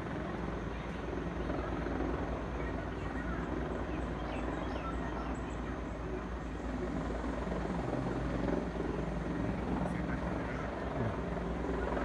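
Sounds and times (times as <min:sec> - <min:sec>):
helicopter rotor chopping: 0:05.9 - 0:12.0.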